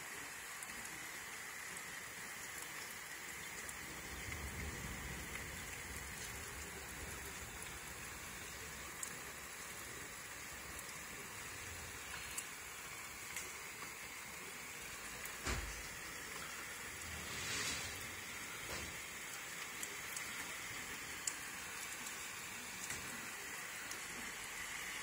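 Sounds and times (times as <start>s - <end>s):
rain falling: 0.0s - 25.0s
low rumble: 4.0s - 8.8s.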